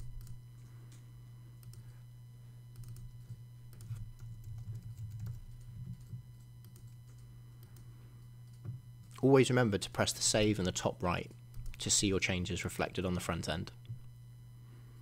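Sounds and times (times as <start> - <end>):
faint keyboard typing: 0.0 - 2.0, 2.7 - 9.2, 11.2 - 11.9
steady low hum: 0.0 - 15.0.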